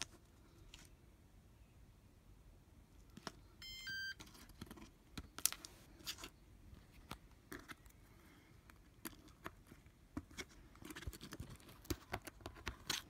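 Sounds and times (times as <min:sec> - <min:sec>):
two-tone electronic beep: 0:03.6 - 0:04.2.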